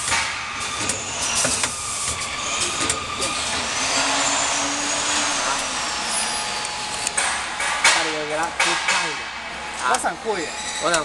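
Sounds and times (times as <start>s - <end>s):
machine clatter and hiss: 0.0s - 11.0s.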